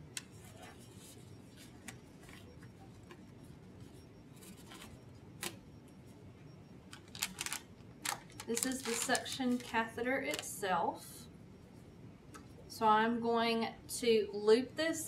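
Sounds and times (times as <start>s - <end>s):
gloves crinkling and snapping: 6.9s - 10.5s.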